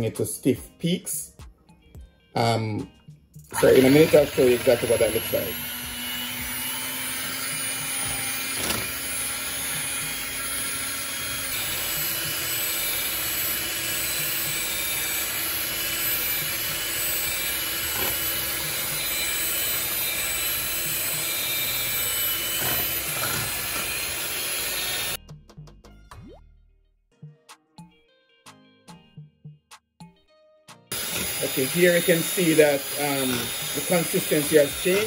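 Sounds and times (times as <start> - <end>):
electric hand mixer whipping cream: 3.5 - 25.2, 30.9 - 35.0.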